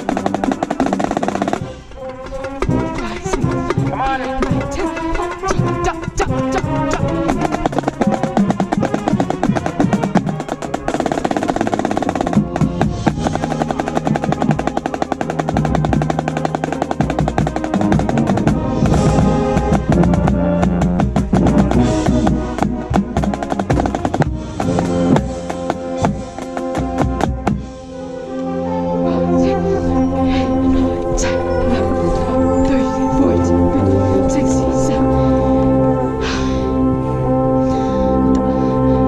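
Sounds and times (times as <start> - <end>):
snare drum strokes and rolls: 0.0 - 28.1
marching band playing: 0.0 - 39.0.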